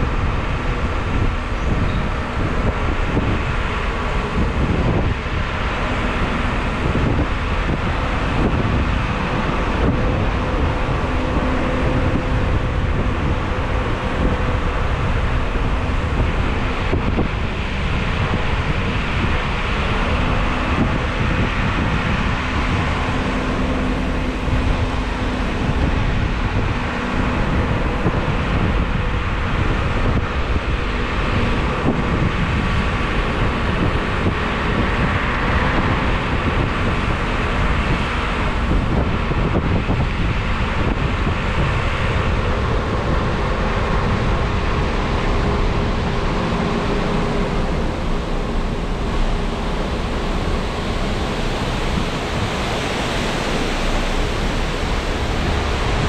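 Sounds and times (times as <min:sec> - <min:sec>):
steady rushing noise: 0:00.0 - 0:56.0
wind buffeting microphone: 0:00.0 - 0:56.0.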